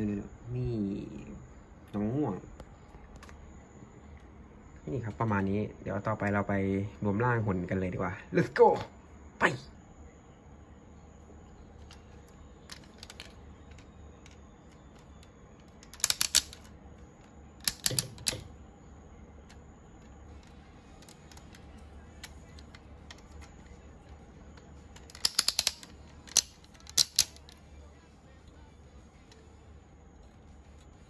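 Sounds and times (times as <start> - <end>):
plastic toy parts clicking: 11.8 - 18.5, 19.4 - 27.6.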